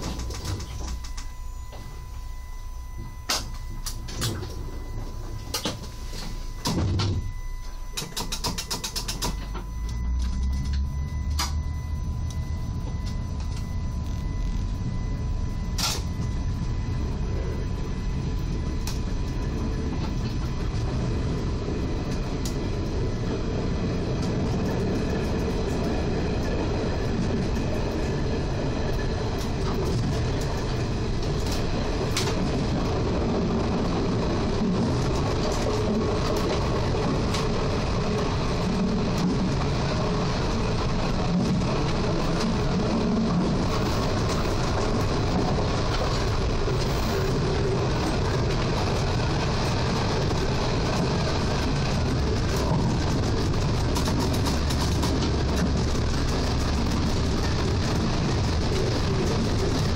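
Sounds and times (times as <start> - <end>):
train wheels on rail: 0.0 - 1.9, 15.7 - 59.9.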